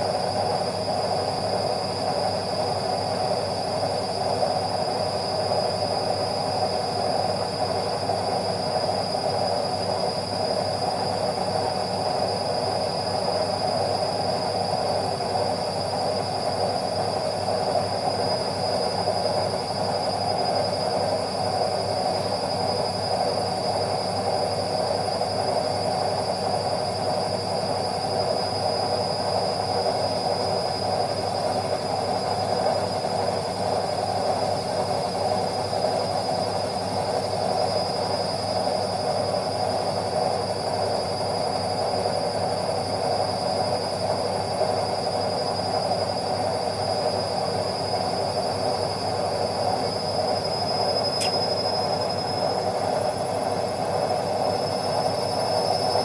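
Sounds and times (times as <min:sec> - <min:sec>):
washing machine spinning: 0:00.0 - 0:56.0
high whine: 0:50.6 - 0:52.6.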